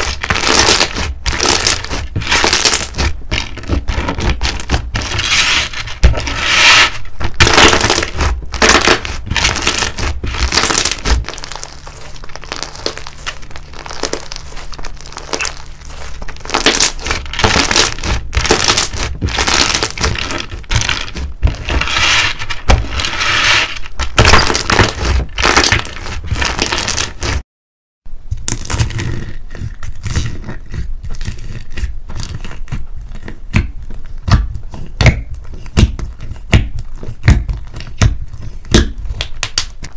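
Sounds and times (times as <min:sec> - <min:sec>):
hands squishing sticky slime: 0:00.0 - 0:21.8.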